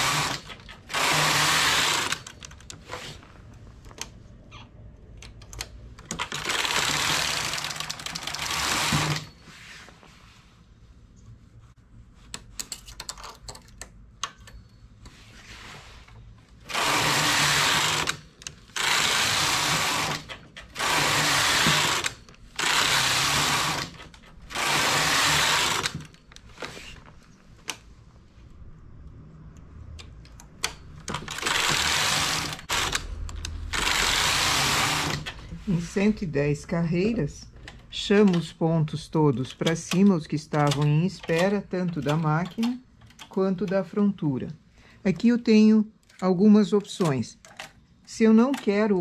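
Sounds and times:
knitting machine carriage rattling: 0:00.0 - 0:04.2, 0:05.2 - 0:09.4, 0:16.6 - 0:27.0, 0:30.5 - 0:35.9, 0:39.3 - 0:44.2.

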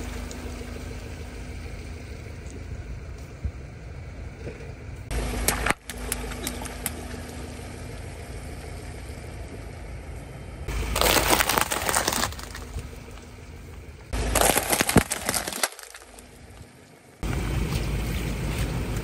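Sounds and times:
low rumble: 0:00.0 - 0:19.0
water beads crackling and popping: 0:10.7 - 0:13.3, 0:14.2 - 0:16.7.

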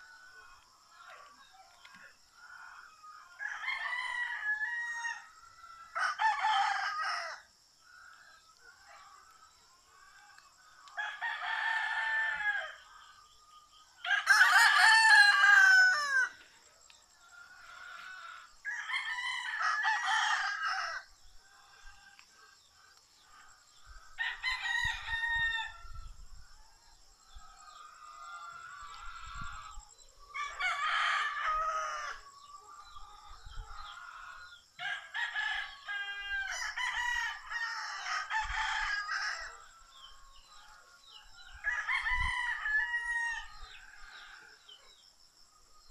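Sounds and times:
rooster crowing: 0:02.6 - 0:07.6, 0:10.4 - 0:13.4, 0:14.0 - 0:16.4, 0:17.3 - 0:21.1, 0:24.1 - 0:26.5, 0:27.6 - 0:40.7, 0:41.5 - 0:44.7.

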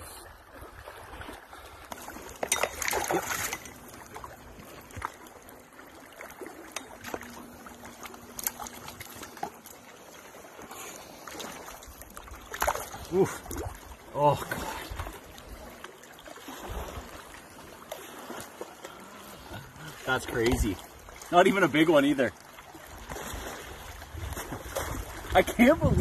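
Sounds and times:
water splashing and trickling: 0:00.0 - 0:26.0.

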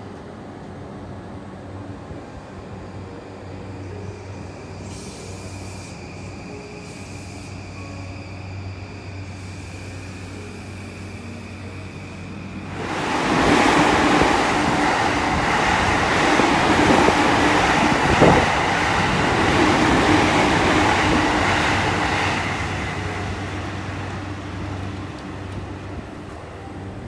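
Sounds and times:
train wheels rumbling on rails: 0:04.7 - 0:27.0
train motor hum: 0:08.6 - 0:27.0.

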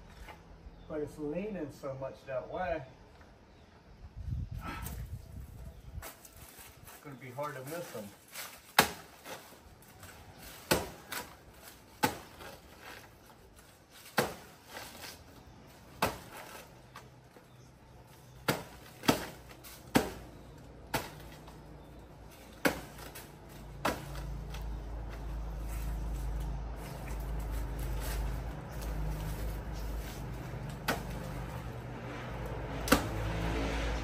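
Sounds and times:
blade chopping plant trunk: 0:08.4 - 0:13.1, 0:14.0 - 0:15.2, 0:15.9 - 0:17.1, 0:18.3 - 0:21.6, 0:22.3 - 0:25.2, 0:27.0 - 0:33.6.

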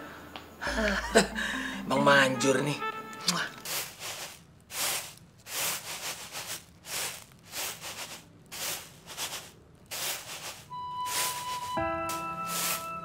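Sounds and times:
held music note: 0:00.7 - 0:03.5, 0:10.7 - 0:13.0
grain swishing on woven tray: 0:03.2 - 0:13.0.

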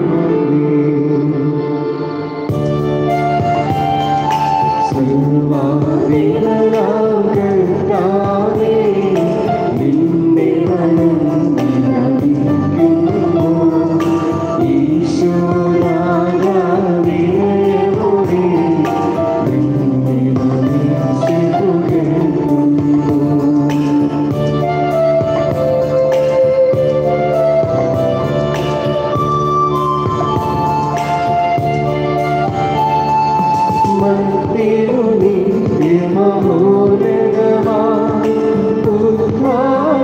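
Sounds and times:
sustained keyboard chords: 0:00.0 - 0:40.0
voices singing a hymn: 0:04.9 - 0:24.3, 0:33.8 - 0:40.0.

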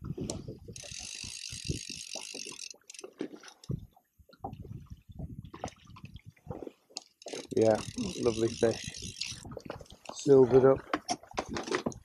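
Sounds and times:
fishing reel ratcheting: 0:00.7 - 0:03.7, 0:07.0 - 0:10.3.

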